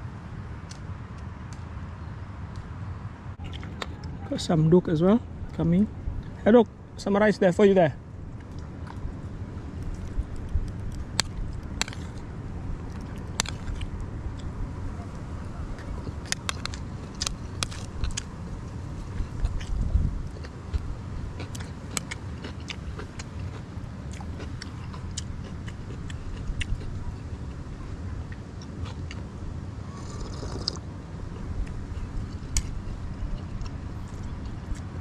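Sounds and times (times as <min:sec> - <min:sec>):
steady low rumble: 0:00.0 - 0:35.0
chewing: 0:08.4 - 0:09.1, 0:09.7 - 0:18.3, 0:19.0 - 0:29.3, 0:29.9 - 0:34.9.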